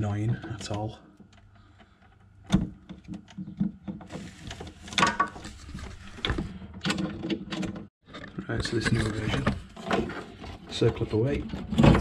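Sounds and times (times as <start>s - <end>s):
scraping rustle: 4.0s - 6.6s.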